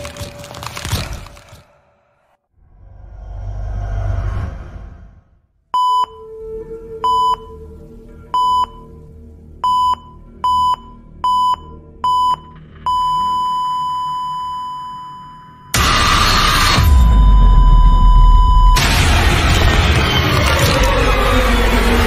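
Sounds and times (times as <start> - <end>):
low rumble: 2.6 - 5.5
long unbroken beep: 5.8 - 6.4, 7.0 - 7.6, 9.6 - 18.8
electronic beeps: 9.6 - 18.8
burst of noise: 15.8 - 22.0.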